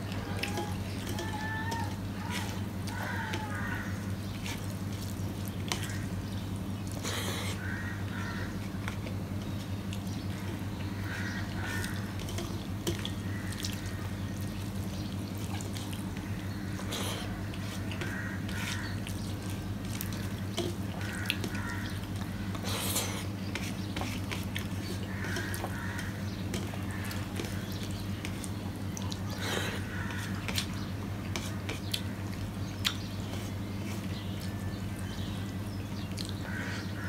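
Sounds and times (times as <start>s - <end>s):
man chewing and lip-smacking: 31.7s - 33.0s, 36.1s - 36.4s.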